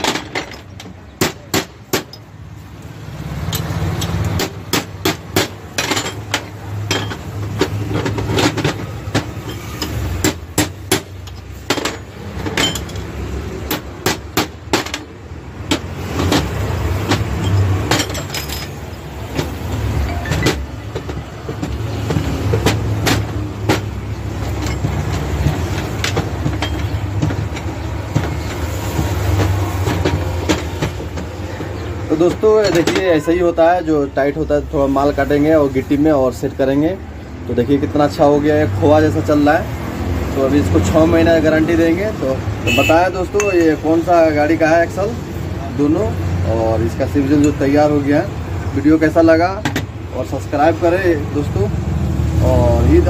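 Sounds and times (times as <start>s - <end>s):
metal clicks: 0.0s - 13.9s
hammer tapping metal: 3.5s - 31.3s.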